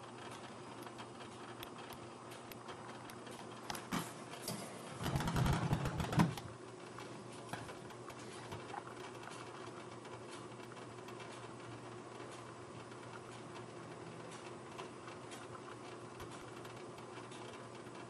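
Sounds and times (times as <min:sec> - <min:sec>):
low mechanical hum: 0:00.0 - 0:18.0
rapid clatter and rumble: 0:05.0 - 0:06.5.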